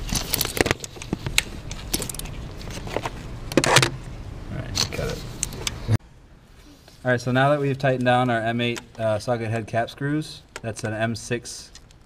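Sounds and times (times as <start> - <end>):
metal parts clicking and knocking: 0.0 - 2.4.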